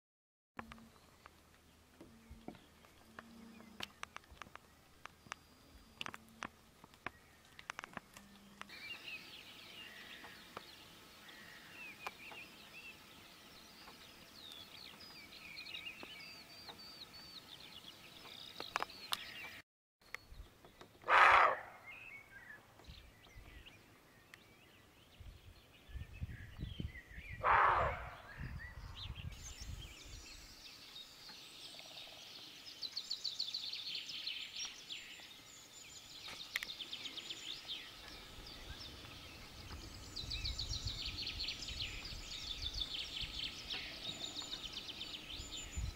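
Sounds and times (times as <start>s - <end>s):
small birds chirping: 0.6s - 45.9s
fast trilling birdsong: 20.2s - 23.8s, 24.6s - 45.9s.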